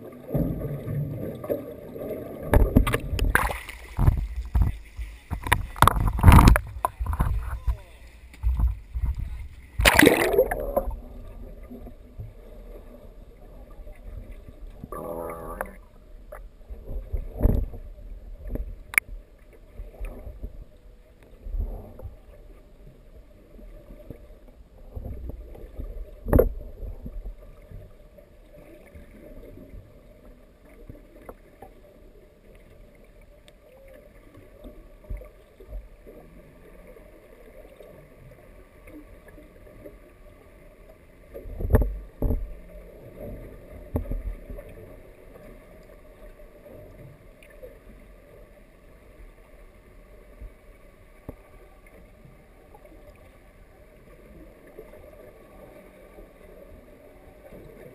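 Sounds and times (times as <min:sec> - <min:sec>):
muffled underwater sloshing: 0:00.0 - 0:57.9
splash into the sea: 0:02.4 - 0:07.8, 0:09.7 - 0:11.0
sharp knocks and thumps: 0:02.6 - 0:07.7.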